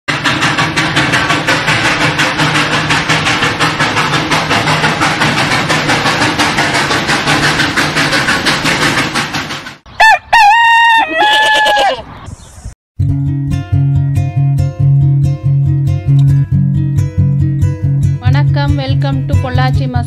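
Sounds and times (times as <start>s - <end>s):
steam train chugging: 0.1s - 11.4s, 16.6s - 20.0s
rooster crowing: 10.0s - 12.1s.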